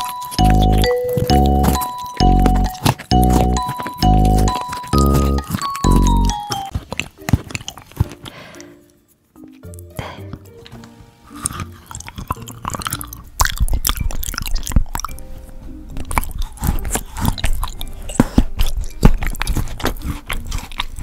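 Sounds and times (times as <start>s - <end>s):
soft background music: 0.0s - 21.0s
crunching hard treat: 11.4s - 15.1s, 16.1s - 21.0s.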